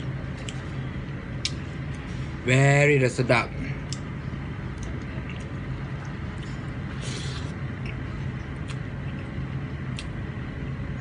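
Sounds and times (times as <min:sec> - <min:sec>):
low background hum: 0:00.0 - 0:11.0
person slurping: 0:06.9 - 0:07.6.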